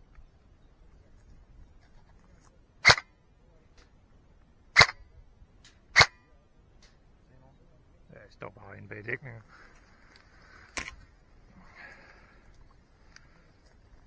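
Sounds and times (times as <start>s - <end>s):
airsoft gun shots: 2.8s - 3.0s, 4.8s - 5.0s, 5.9s - 6.2s.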